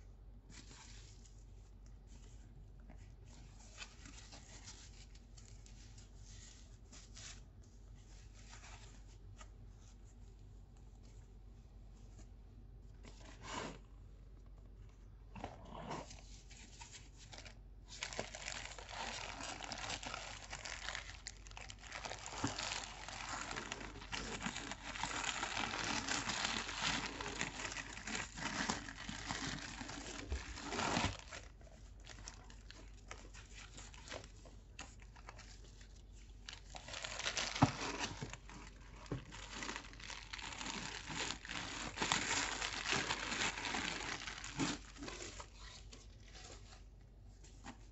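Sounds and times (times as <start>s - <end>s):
plastic and paper crinkling: 0.4s - 13.5s, 16.0s - 47.9s.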